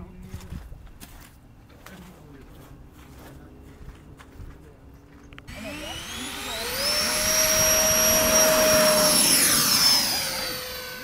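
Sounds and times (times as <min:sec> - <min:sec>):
electric ducted fan whine: 0:02.2 - 0:11.0.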